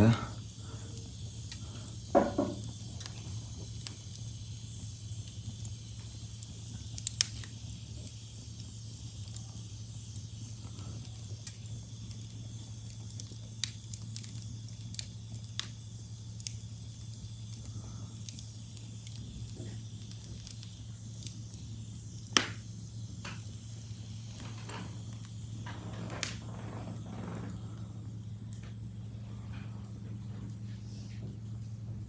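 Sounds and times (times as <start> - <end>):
fire crackles and pops: 0.0 - 32.0
log fire hissing: 0.0 - 32.0
steady low hum: 0.0 - 32.0.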